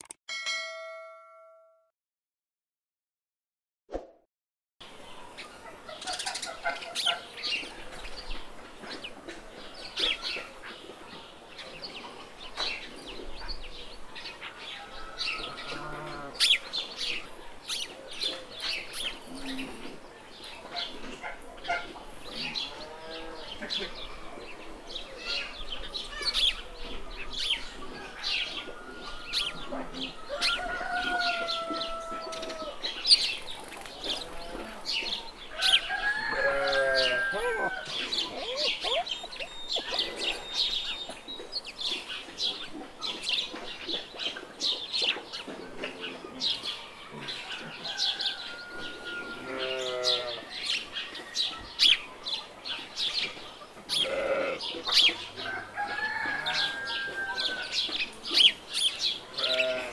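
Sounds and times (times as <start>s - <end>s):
small birds chirping: 5.0s - 48.1s, 49.5s - 59.9s
chickens clucking: 5.4s - 13.6s, 14.3s - 49.7s, 50.7s - 59.9s.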